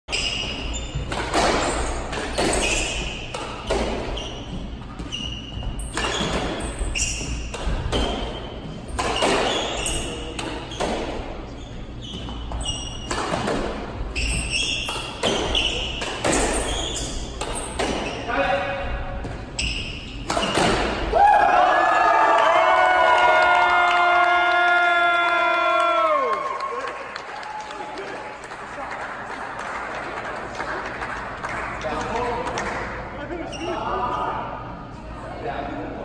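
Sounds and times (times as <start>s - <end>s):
squash ball hits: 0.4s - 4.2s, 4.9s - 11.3s, 12.2s - 18.1s, 20.2s - 21.2s
shoes squeaking on hardwood floor: 4.0s - 7.5s, 8.3s - 13.2s, 14.1s - 18.4s, 19.4s - 20.6s.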